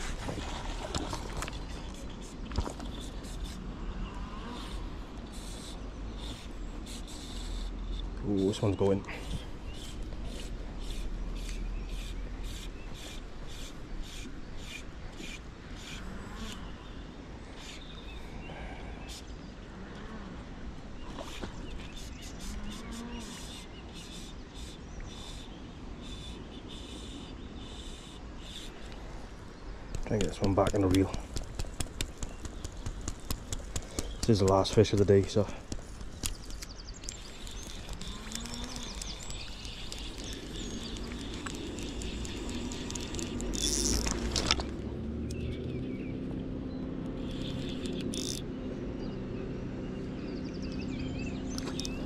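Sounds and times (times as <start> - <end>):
faint birdsong: 0.0 - 52.0
wind rumbling on microphone: 28.8 - 46.4
fly line zipping through rod guides: 30.0 - 45.7, 47.2 - 48.5
fishing reel ratchet buzzing: 37.4 - 44.5, 47.2 - 48.4.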